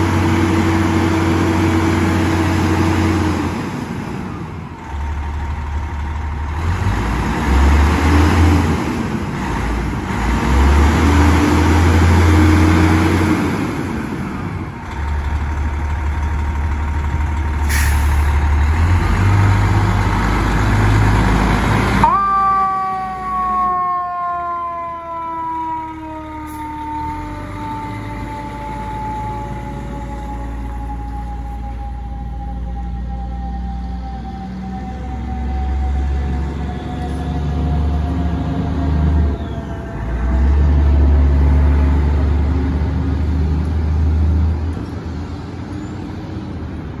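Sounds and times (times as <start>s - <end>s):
truck engine rumble: 0.0s - 47.0s
mechanical siren winding down: 22.0s - 41.3s.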